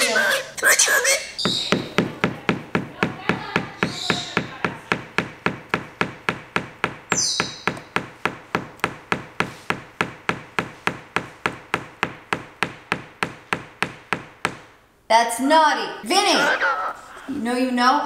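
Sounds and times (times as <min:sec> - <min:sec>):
bird beak knocking on box: 0:01.4 - 0:14.8.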